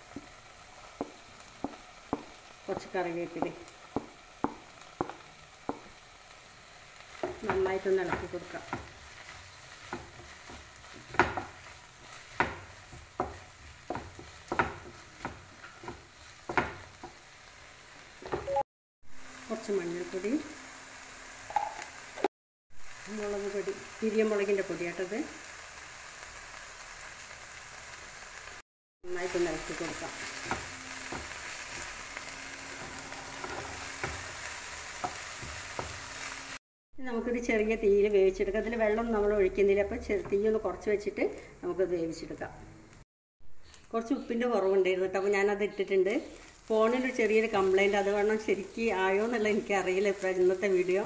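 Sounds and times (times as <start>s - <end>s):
faint sizzle: 0.0s - 43.0s, 43.6s - 51.0s
wooden spatula scraping pan: 29.7s - 36.3s.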